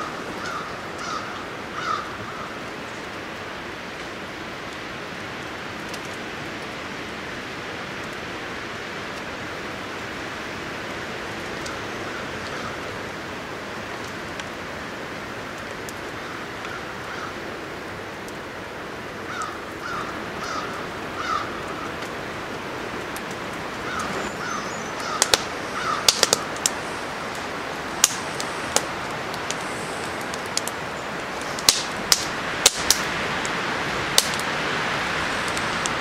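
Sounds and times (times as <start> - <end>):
bird calling: 0.0 - 2.6, 19.3 - 22.0, 23.8 - 27.1
wind rushing through woods: 0.0 - 36.0.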